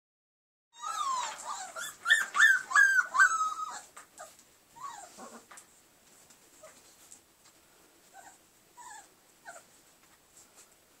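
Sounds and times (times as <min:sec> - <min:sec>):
puppies whimpering: 0:00.8 - 0:05.5, 0:08.2 - 0:09.7.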